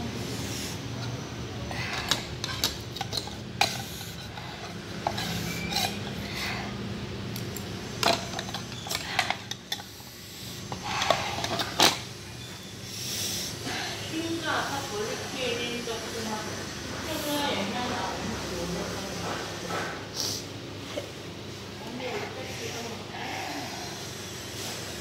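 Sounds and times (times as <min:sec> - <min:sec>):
cutlery scraping against bowl: 0:01.0 - 0:06.6, 0:08.0 - 0:10.0, 0:10.7 - 0:12.1.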